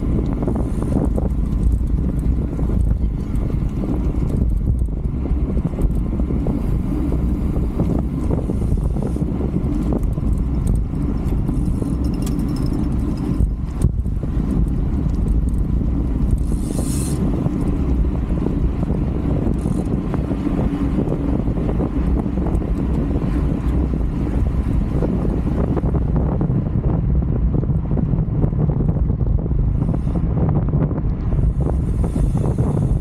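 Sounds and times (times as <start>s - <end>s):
road and tyre noise: 0.0s - 33.0s
wind buffeting microphone: 0.0s - 33.0s.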